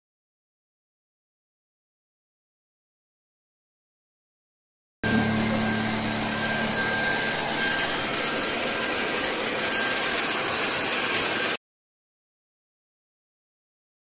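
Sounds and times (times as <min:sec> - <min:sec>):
hair dryer blowing: 0:05.0 - 0:11.6.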